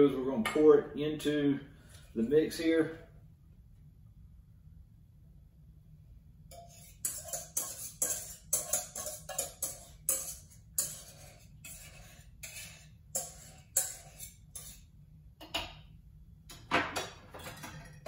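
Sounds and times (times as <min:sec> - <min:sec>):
spoon scraping metal bowl: 0:06.5 - 0:15.0.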